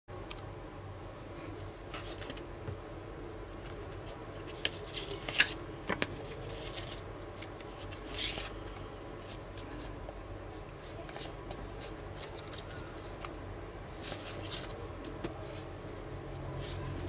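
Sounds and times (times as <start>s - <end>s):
steady low hum: 0.1s - 17.0s
paper cards rustling: 1.9s - 2.4s, 3.6s - 10.0s, 10.8s - 17.0s.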